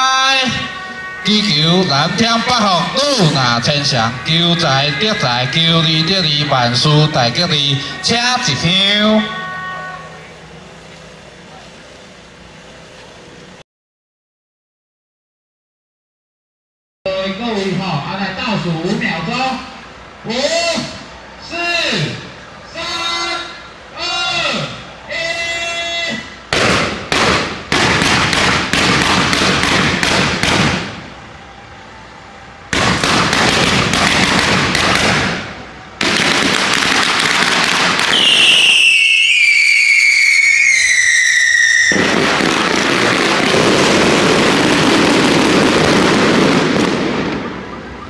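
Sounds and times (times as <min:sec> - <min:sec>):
fireworks cracks and bangs: 0:00.0 - 0:10.2, 0:26.5 - 0:31.3, 0:32.7 - 0:48.0
whistling fireworks: 0:00.0 - 0:13.3, 0:20.4 - 0:48.0.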